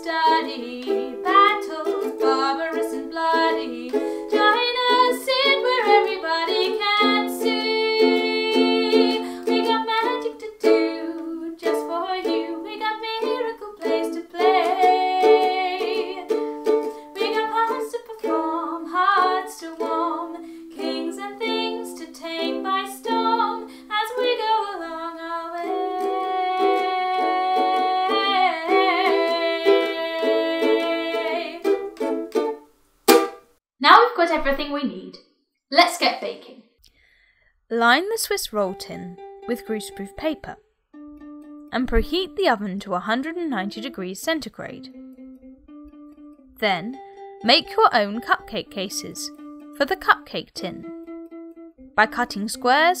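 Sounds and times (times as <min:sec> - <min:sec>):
woman singing: 0:00.0 - 0:31.7, 0:38.6 - 0:40.6, 0:46.6 - 0:50.9
ukulele: 0:00.0 - 0:33.5, 0:38.5 - 0:42.8, 0:43.5 - 0:53.0.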